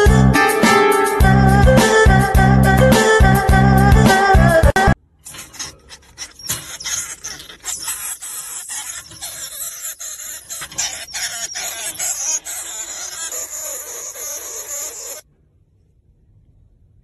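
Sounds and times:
claws clicking on metal bars: 0:05.2 - 0:07.9
small animals squealing: 0:05.3 - 0:15.2
hissing chattering noise: 0:06.1 - 0:15.2.

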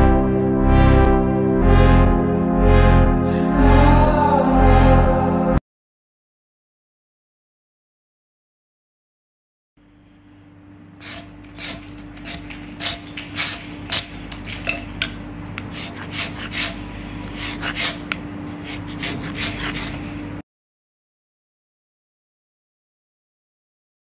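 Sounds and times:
low hum: 0:00.0 - 0:05.6.

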